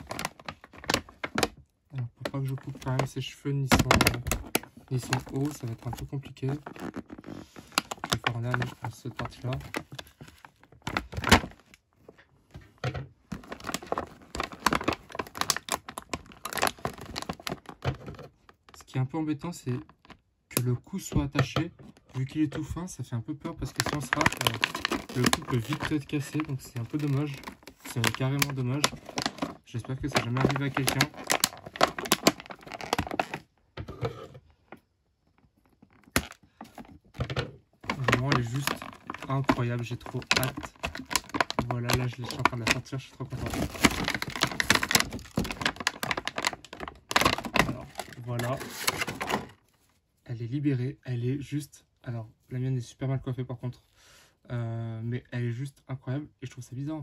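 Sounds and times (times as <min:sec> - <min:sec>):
plastic packaging crackling: 0:00.0 - 0:12.1, 0:13.2 - 0:18.9, 0:23.5 - 0:33.5, 0:35.6 - 0:49.9.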